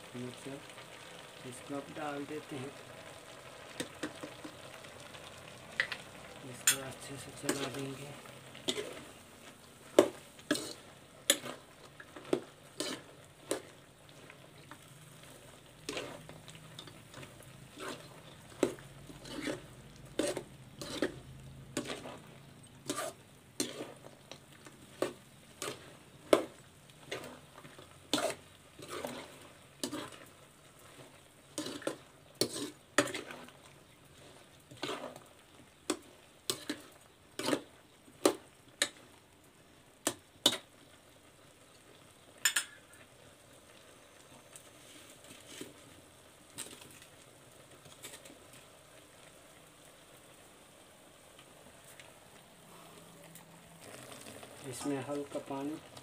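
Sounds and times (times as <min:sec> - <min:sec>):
vegetables sizzling in oil: 0:00.0 - 0:56.0
spatula scraping a pan: 0:03.4 - 0:04.6, 0:05.8 - 0:39.1, 0:40.1 - 0:40.7, 0:44.6 - 0:47.1, 0:47.8 - 0:48.5.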